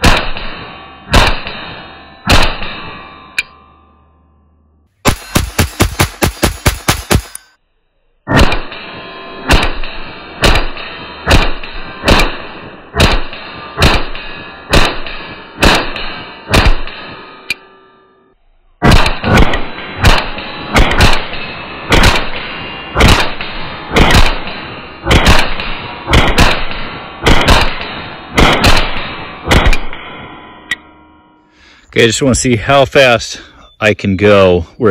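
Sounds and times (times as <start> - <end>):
pistol shots echoing: 5.1 - 7.5, 9.5 - 16.9, 18.8 - 29.9.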